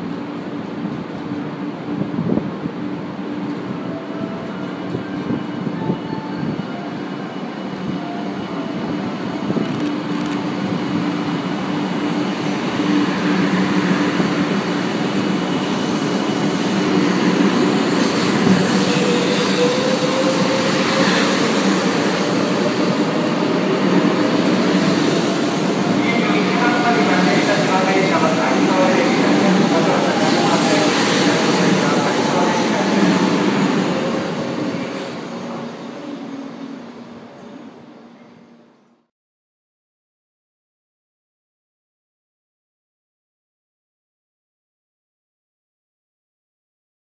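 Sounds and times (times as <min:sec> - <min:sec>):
train running noise: 0:00.0 - 0:38.0.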